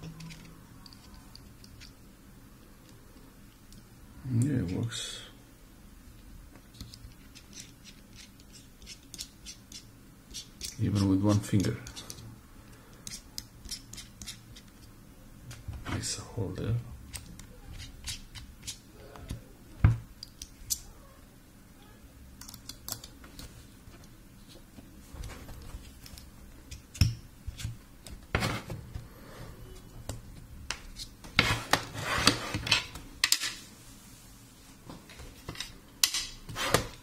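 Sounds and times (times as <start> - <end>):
screwdriver bits clicking and clattering: 0.2 - 1.9.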